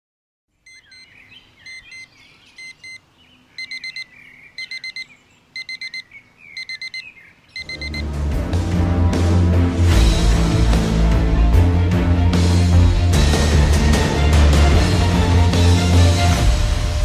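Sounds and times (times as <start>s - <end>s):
birds chirping: 0.5s - 8.0s
digital alarm clock beeping: 0.7s - 1.1s, 1.7s - 3.0s, 3.6s - 8.1s
music: 7.6s - 17.0s.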